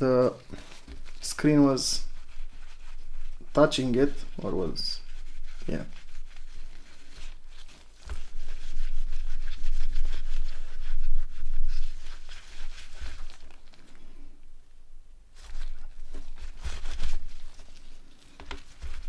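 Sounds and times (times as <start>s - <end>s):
hands rubbing and scraping phone parts: 0.4s - 14.1s, 15.4s - 19.0s.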